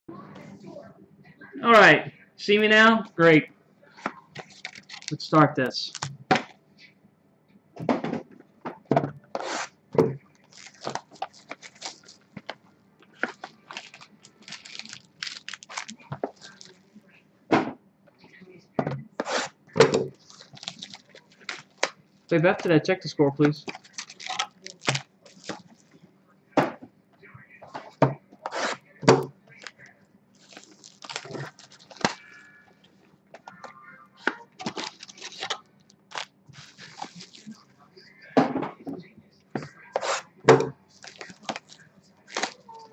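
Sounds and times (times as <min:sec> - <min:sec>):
foil wrapper crinkling and tearing: 0:04.4 - 0:06.1, 0:10.3 - 0:16.9, 0:20.1 - 0:22.0, 0:23.6 - 0:25.9, 0:30.4 - 0:32.4, 0:34.6 - 0:37.6, 0:40.9 - 0:42.9.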